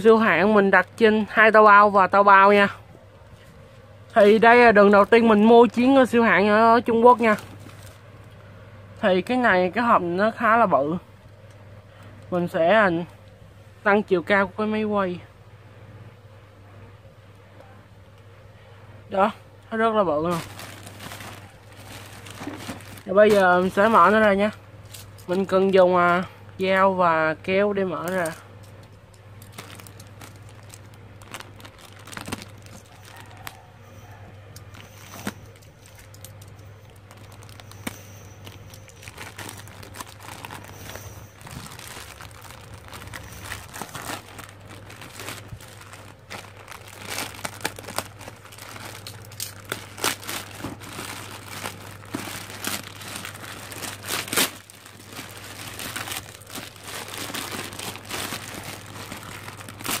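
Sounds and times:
plastic bag crinkling and tearing: 6.8 - 8.1, 20.2 - 26.2, 28.0 - 33.7, 34.6 - 60.0.

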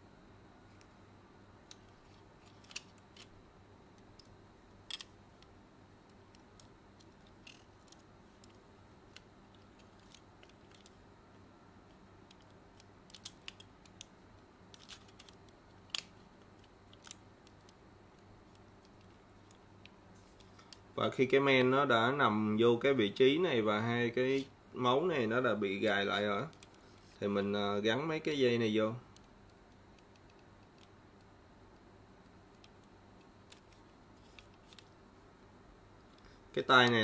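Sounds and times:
faint low hum: 0.0 - 37.0
plastic parts clicking into place: 4.9 - 5.5.

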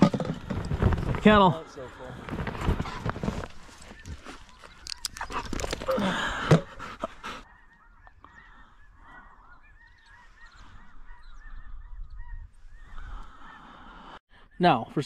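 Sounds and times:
geese honking: 6.6 - 14.1.

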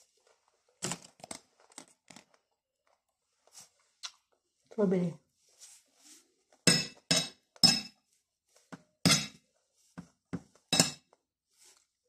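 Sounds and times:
metal spoon clinking on a plate: 10.8 - 11.0.

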